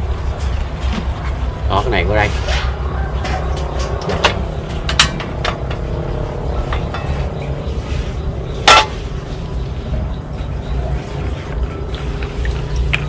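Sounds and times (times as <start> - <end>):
low rumble: 2.4 - 13.0
cooking utensils clinking: 8.6 - 9.0.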